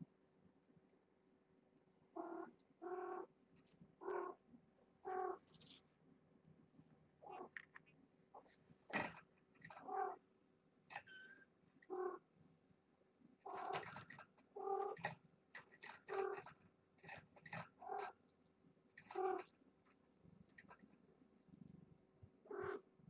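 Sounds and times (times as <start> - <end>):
cat meowing: 22.5 - 22.8.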